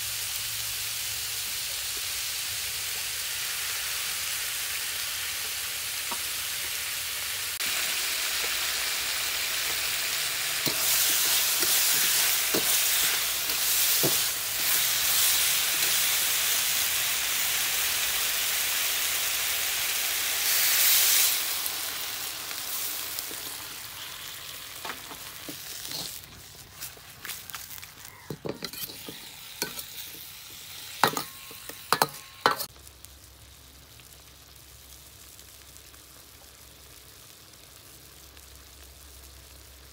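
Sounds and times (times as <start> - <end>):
vegetables sizzling in a wok: 0.0 - 39.9
metal spatula scraping a wok: 10.4 - 16.6, 25.1 - 32.7.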